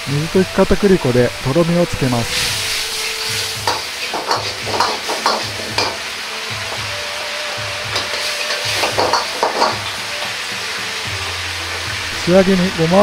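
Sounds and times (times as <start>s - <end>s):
sauce sizzling: 0.0s - 13.0s
metal ladle scraping a wok: 2.2s - 6.0s.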